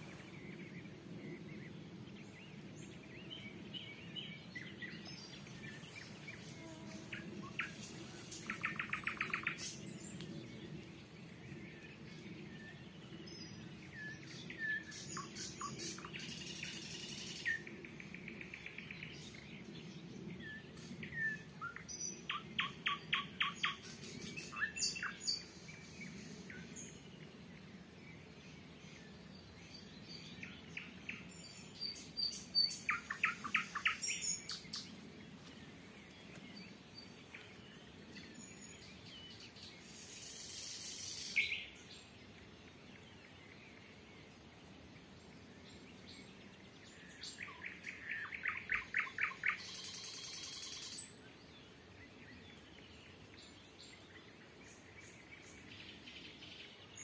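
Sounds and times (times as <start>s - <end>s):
nightingales singing: 30.2s - 34.9s.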